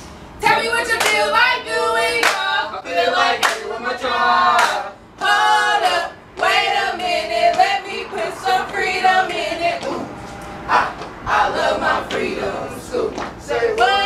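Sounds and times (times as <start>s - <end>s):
group singing a cheer: 0.4s - 14.0s
hand claps: 2.2s - 2.4s, 3.4s - 3.7s, 4.6s - 5.4s.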